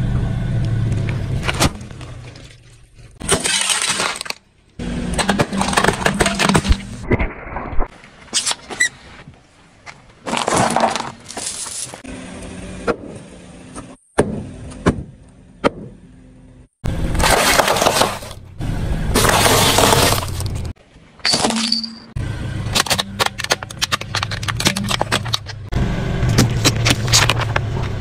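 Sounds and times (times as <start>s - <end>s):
tyre crushing plastic: 3.2s - 4.4s, 10.2s - 11.9s, 17.1s - 18.4s, 19.2s - 20.7s, 22.7s - 25.7s, 26.3s - 27.7s.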